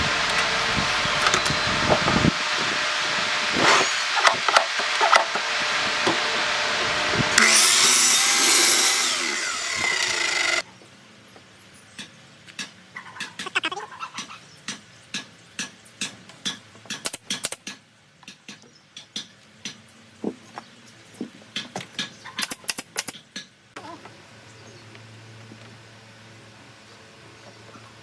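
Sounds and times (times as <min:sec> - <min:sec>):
miter saw cutting wood: 0:00.0 - 0:10.6.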